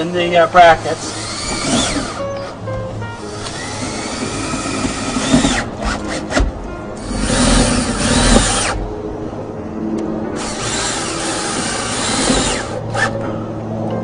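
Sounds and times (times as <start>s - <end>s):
power drill driving fastener: 1.0s - 2.5s, 3.2s - 6.4s, 7.0s - 8.8s, 10.4s - 13.2s.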